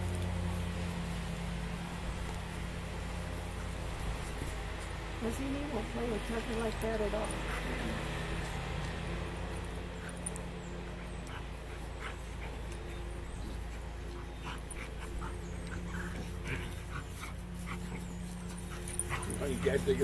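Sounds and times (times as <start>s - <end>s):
dogs panting: 0.0s - 20.0s
low background hum: 0.0s - 20.0s
dogs whimpering and yipping: 9.5s - 20.0s.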